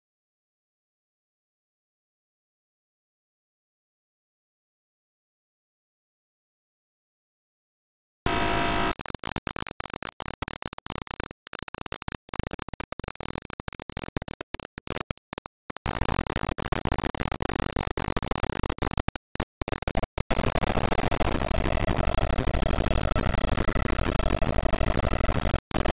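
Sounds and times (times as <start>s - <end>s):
buzzing pitched tone: 8.3s - 9.0s
choppy stuttering noise: 8.3s - 25.9s.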